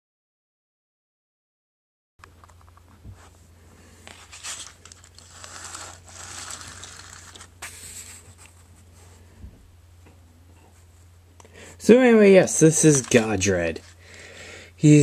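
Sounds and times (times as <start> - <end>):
steady low hum: 2.3 - 15.0
rustling and rubbing: 4.0 - 9.2, 12.5 - 14.0.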